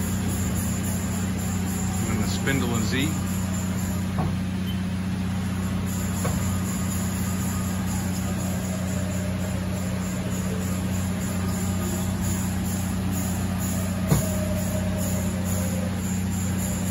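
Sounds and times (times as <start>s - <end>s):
machine low hum: 0.0s - 16.9s.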